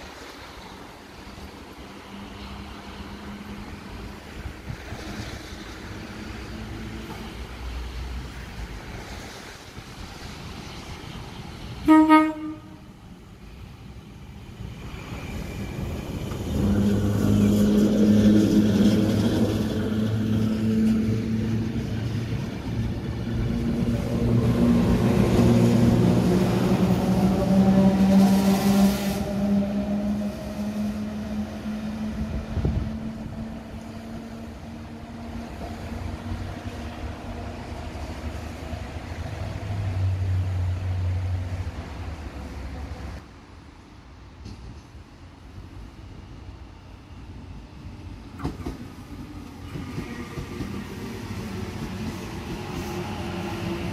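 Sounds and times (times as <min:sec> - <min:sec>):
train rumbling over rails: 0:00.0 - 0:53.9
train horn blast: 0:11.8 - 0:12.9, 0:26.8 - 0:33.4.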